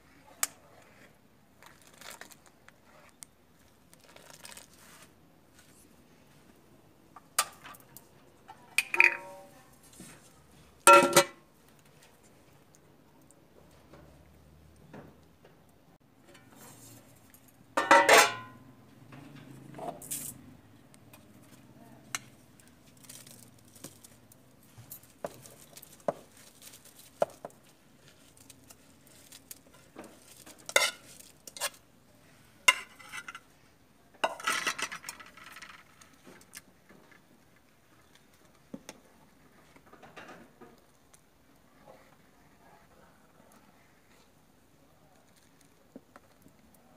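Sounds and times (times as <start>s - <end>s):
ladle clinking against metal pot: 8.8s - 9.5s, 10.9s - 11.4s, 17.8s - 18.6s
pot lid clanging: 8.8s - 9.5s, 10.9s - 11.4s, 17.8s - 18.6s.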